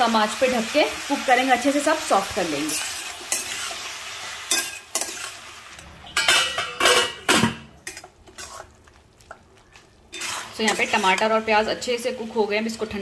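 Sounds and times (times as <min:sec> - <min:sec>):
light sizzle: 0:00.0 - 0:13.0
spatula stirring in a pan: 0:02.5 - 0:06.7, 0:07.8 - 0:13.0.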